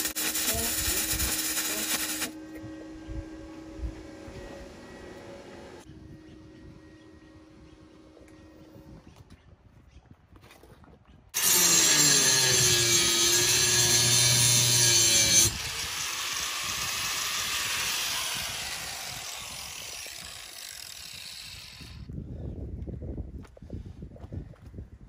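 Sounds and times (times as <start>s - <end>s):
angle grinder cutting steel: 0.0s - 2.9s, 11.4s - 22.1s.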